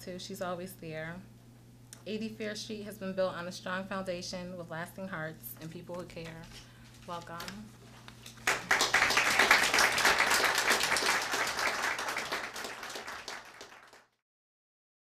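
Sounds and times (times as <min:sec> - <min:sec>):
audience applauding: 0:08.4 - 0:14.2.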